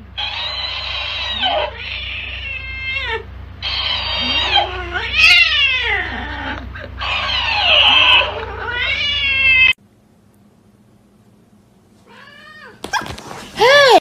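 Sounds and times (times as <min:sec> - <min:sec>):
cat yowling: 0:00.2 - 0:09.8, 0:12.1 - 0:13.1.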